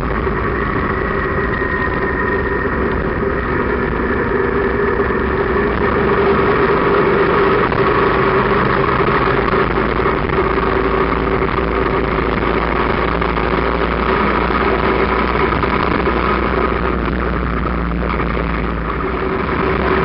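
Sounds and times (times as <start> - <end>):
motorcycle engine running: 0.0 - 20.0
wind and road noise: 0.0 - 20.0.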